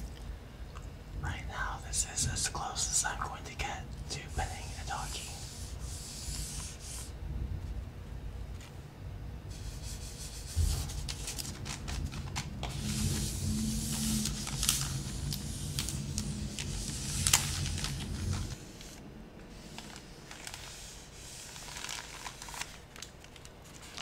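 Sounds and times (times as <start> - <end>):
paper scrunching and crinkling: 9.6 - 19.0, 19.6 - 24.0.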